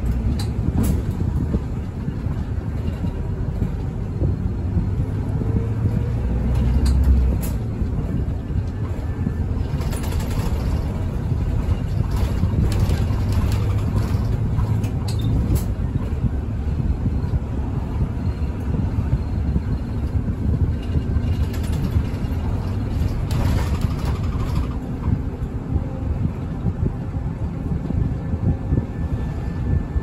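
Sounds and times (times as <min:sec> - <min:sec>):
bus engine and road rumble: 0:00.0 - 0:30.0
light clicks and rattles: 0:20.0 - 0:25.5.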